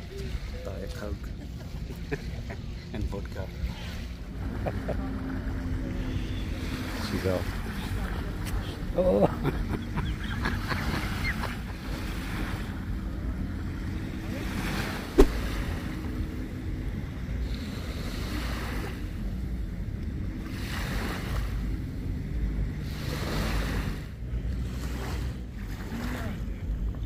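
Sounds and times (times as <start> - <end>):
small waves washing onto shore: 0.0 - 26.8
wind rumbling on microphone: 10.6 - 27.0.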